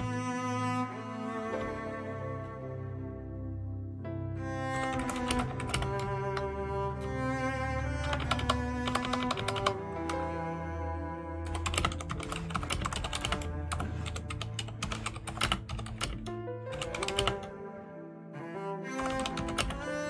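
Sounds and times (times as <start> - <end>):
cello music: 0.0 - 20.0
typing on computer keyboard: 4.9 - 6.1, 8.1 - 9.8, 11.5 - 17.5, 19.0 - 19.8.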